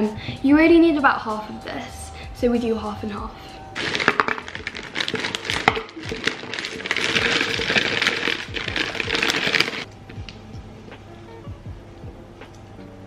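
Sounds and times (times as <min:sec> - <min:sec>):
berries pouring rattling hiss: 0:03.8 - 0:09.9
frozen fruit clattering into blender: 0:03.8 - 0:09.9.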